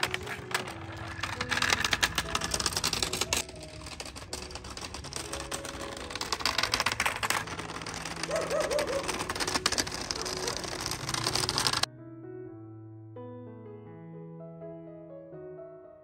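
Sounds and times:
wooden cart rattling over gravel: 0.0s - 11.9s
piano music: 0.0s - 16.0s.

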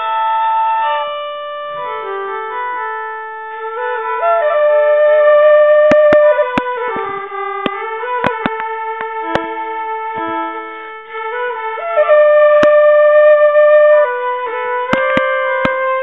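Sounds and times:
slow melody of held notes: 0.0s - 16.0s
sharp taps: 5.9s - 9.5s, 14.9s - 15.8s.

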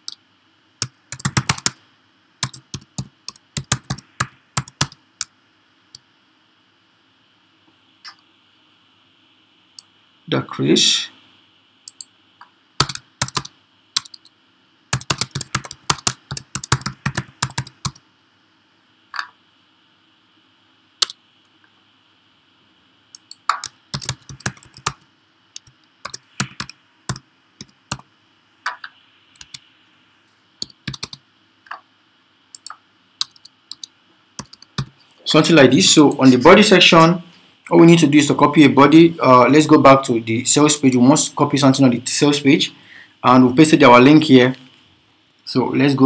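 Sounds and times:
typing on computer keyboard: 0.8s - 1.8s, 2.4s - 5.0s, 12.8s - 14.3s, 15.0s - 18.0s, 23.2s - 25.0s, 25.6s - 28.0s, 30.6s - 31.2s, 32.5s - 34.9s.

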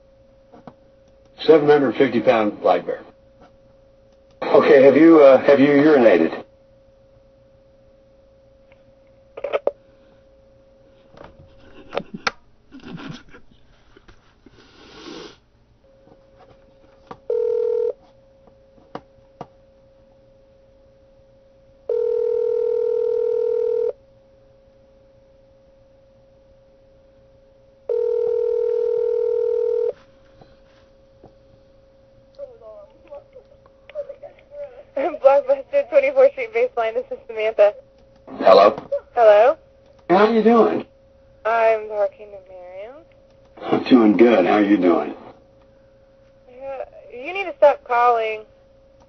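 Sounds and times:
telephone ringback tone: 17.3s - 18.0s, 21.9s - 24.0s, 27.9s - 30.0s.

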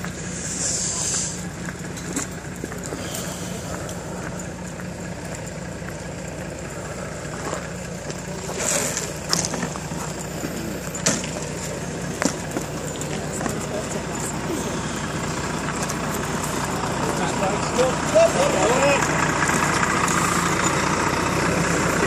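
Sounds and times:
truck engine running: 0.0s - 22.0s.

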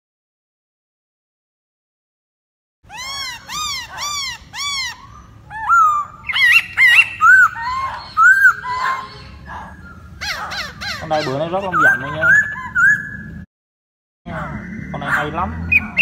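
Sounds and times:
bird whistling song: 2.9s - 13.4s, 14.6s - 16.0s.

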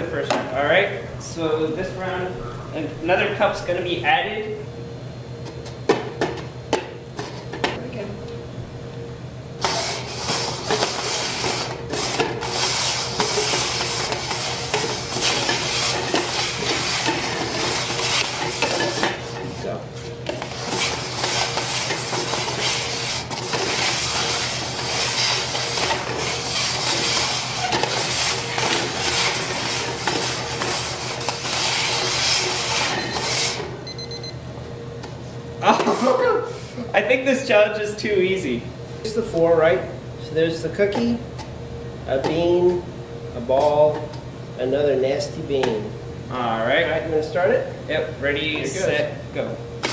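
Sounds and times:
plastic cups scraping on wood: 9.6s - 19.6s, 20.3s - 33.6s.

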